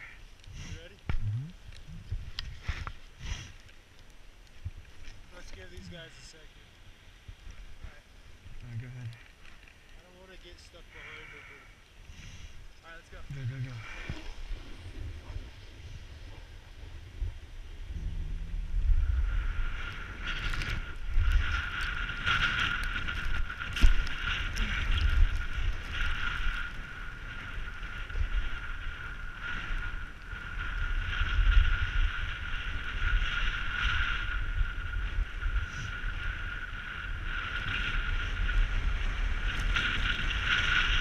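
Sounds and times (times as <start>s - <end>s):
wind rumble on microphone: 0.0s - 3.7s, 4.4s - 10.6s, 12.1s - 41.0s
snowboard sliding over snow: 13.0s - 41.0s.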